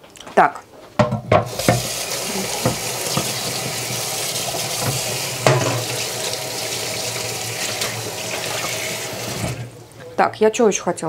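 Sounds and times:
dish clinking: 1.0s - 3.6s, 4.8s - 6.0s
water running from tap into sink: 1.4s - 9.8s.

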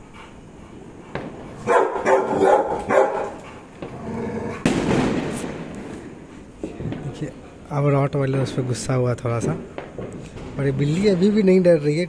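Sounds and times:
dog barking: 1.6s - 3.4s.

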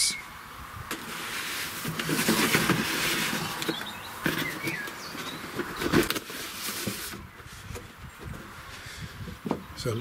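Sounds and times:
cardboard box rustling and scraping: 1.0s - 8.5s.

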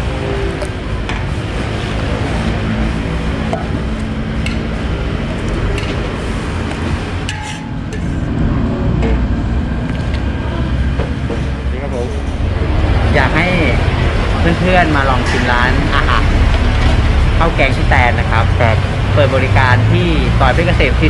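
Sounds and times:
steady low rumble: 0.0s - 21.0s
ladle clinking against wok: 7.2s - 8.2s.

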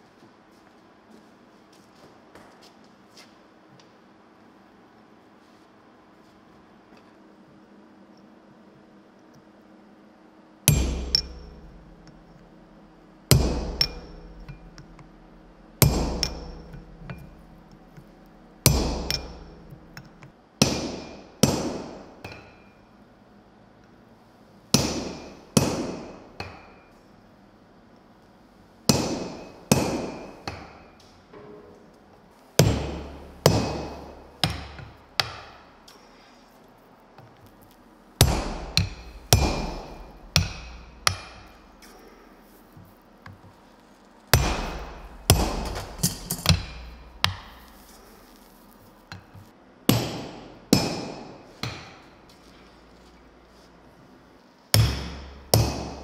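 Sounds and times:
hammers striking steel on anvil: 10.7s - 22.8s, 24.7s - 27.0s, 28.9s - 31.0s, 32.6s - 35.7s, 38.2s - 42.0s, 44.3s - 48.0s, 49.1s - 52.1s, 54.8s - 56.0s.

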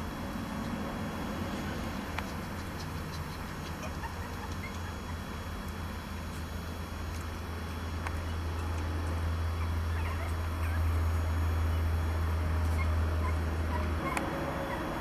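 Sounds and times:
steady low hum: 0.0s - 15.0s
puppies squeaking: 2.2s - 5.5s, 9.4s - 12.0s, 12.6s - 15.0s.

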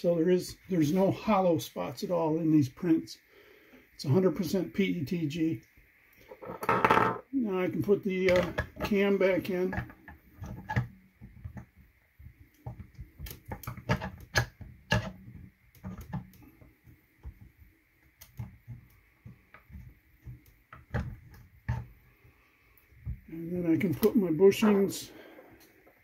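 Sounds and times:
plastic parts clicking and knocking: 8.2s - 9.0s, 9.7s - 22.0s.

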